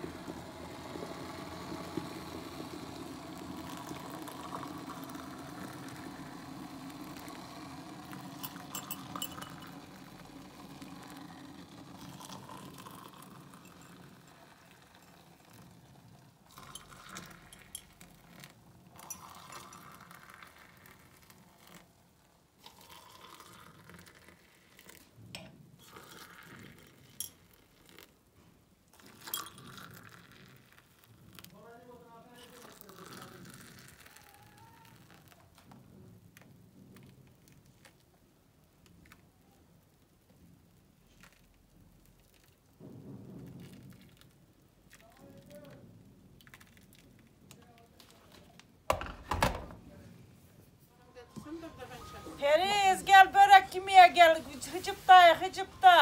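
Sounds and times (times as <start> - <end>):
kettle boiling rumble: 0.0 - 21.8, 22.5 - 28.1, 28.9 - 31.6, 32.4 - 47.5
water pouring into mugs: 0.0 - 25.2, 25.8 - 28.2, 28.9 - 31.6, 32.3 - 35.7, 41.1 - 44.3, 46.4 - 47.6
spoons clinking against cups: 8.2 - 10.0, 16.5 - 18.1, 19.0 - 20.2, 29.1 - 29.9.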